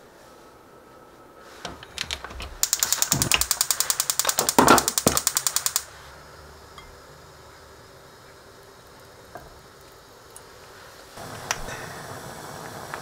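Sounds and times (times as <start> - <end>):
stove spark igniter ticking: 1.8 - 6.0, 6.7 - 13.0.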